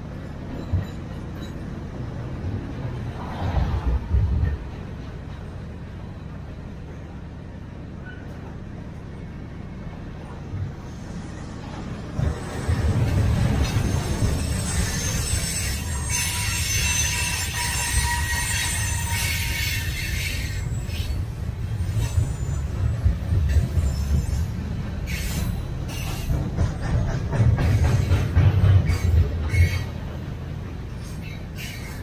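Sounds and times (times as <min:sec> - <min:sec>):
train wheels rumbling on rails: 0:00.0 - 0:32.0
high wheel squeal: 0:12.3 - 0:26.4, 0:31.0 - 0:32.0.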